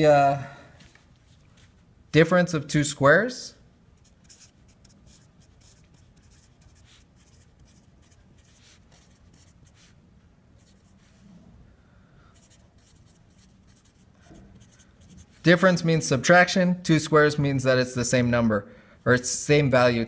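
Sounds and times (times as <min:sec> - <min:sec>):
marker writing on paper: 0:04.0 - 0:10.0, 0:10.6 - 0:11.1, 0:12.4 - 0:15.5.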